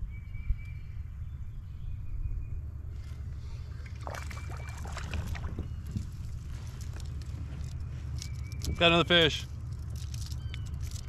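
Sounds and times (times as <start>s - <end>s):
steady low rumble: 0.0s - 11.0s
fish splashing at water surface: 3.6s - 6.1s.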